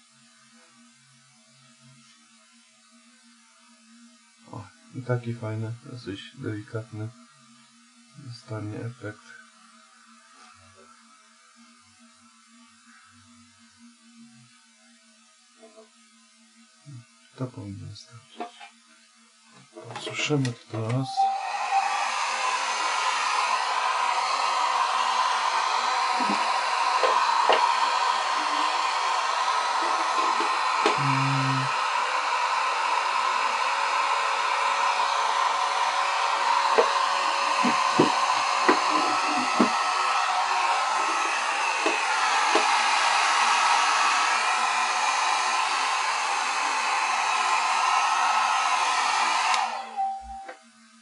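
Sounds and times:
hair dryer blowing: 19.6 - 50.6.

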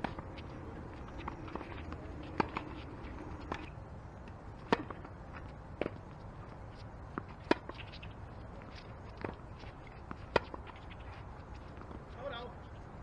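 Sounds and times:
faint footsteps on hard court: 0.0 - 13.0
tennis ball hit by racquet: 1.0 - 3.7, 4.6 - 5.2, 7.1 - 8.0.

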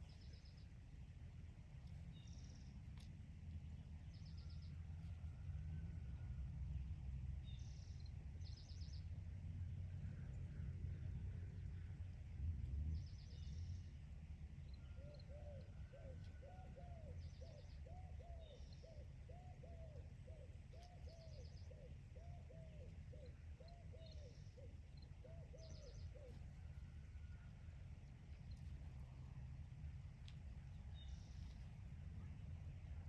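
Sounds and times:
low outdoor rumble: 0.0 - 33.0
small bird chirping: 14.6 - 26.5, 30.7 - 32.9
dove cooing: 14.9 - 26.4.

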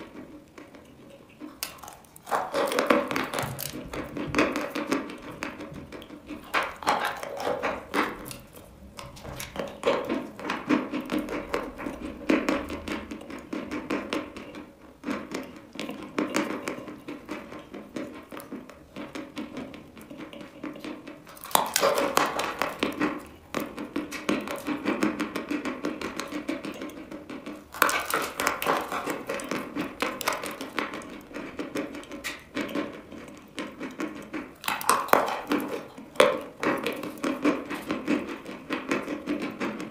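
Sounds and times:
chewing and crunching chalk: 0.0 - 13.4, 20.0 - 25.2, 26.2 - 38.5.

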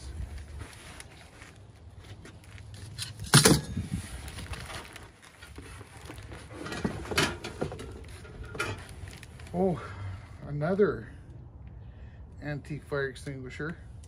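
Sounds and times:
bag rustling and scraping: 0.3 - 9.5.

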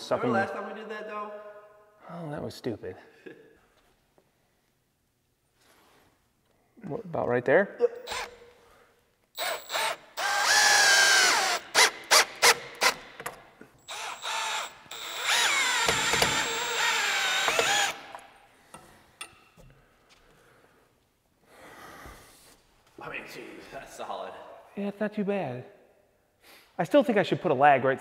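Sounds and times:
cordless drill driving screws: 8.1 - 8.4, 9.4 - 18.2.

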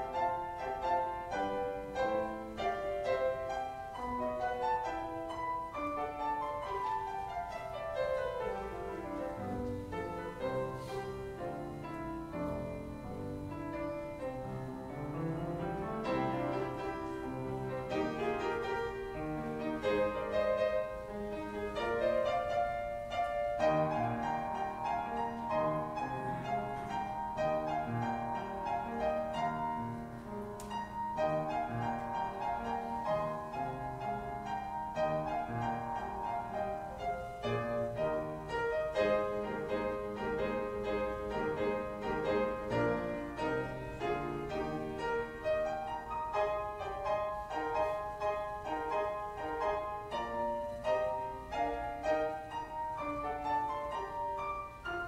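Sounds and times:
piano playing: 0.0 - 55.0.

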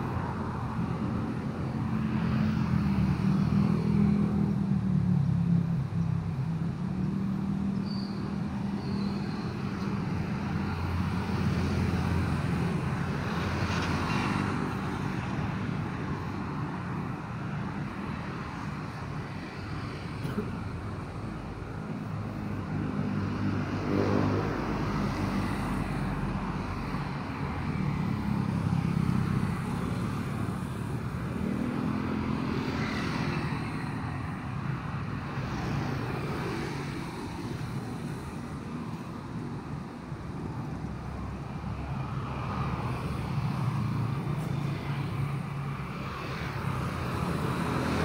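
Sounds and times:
motor vehicles humming: 0.0 - 48.0
vehicle engines passing: 0.0 - 48.0.

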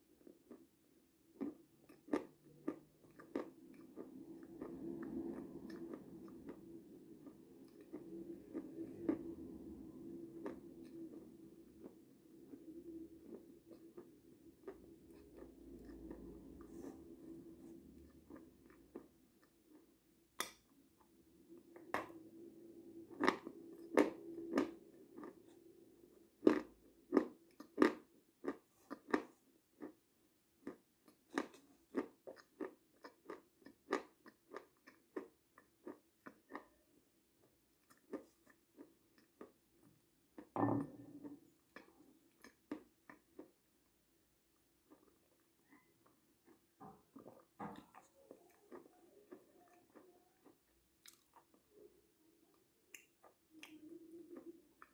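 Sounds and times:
mouth sounds eating yogurt: 44.6 - 54.9.

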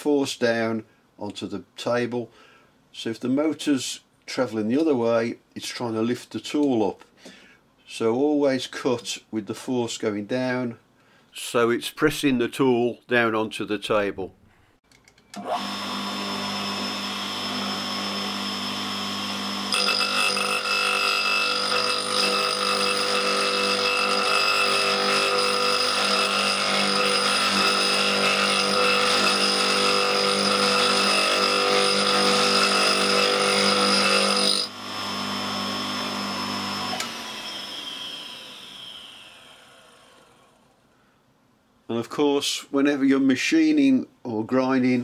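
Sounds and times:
grinder motor running: 15.5 - 40.4.

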